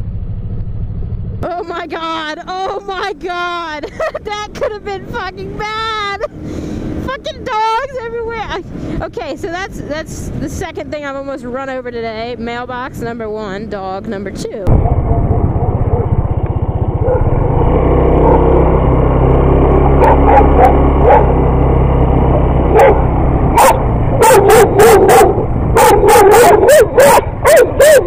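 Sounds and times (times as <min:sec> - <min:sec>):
motorcycle engine running: 0:00.0 - 0:28.0
dogs barking: 0:14.7 - 0:16.2, 0:17.0 - 0:17.5, 0:18.2 - 0:18.6, 0:19.9 - 0:21.4, 0:22.7 - 0:28.0.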